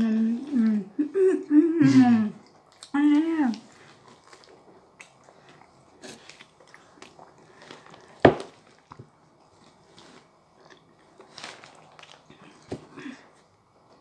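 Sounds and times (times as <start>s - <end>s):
people chewing bread: 0.0s - 14.0s.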